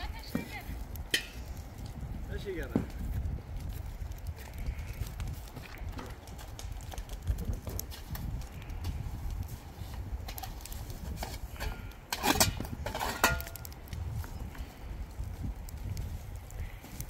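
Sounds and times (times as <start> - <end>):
metal shovel scraping stony ground: 9.9 - 13.7.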